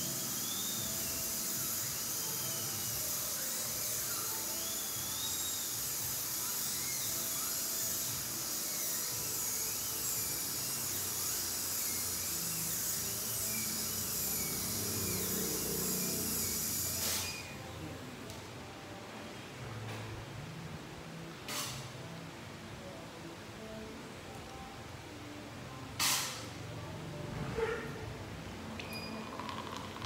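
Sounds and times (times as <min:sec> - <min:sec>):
dental drill whining: 0:00.0 - 0:17.6, 0:28.9 - 0:30.0.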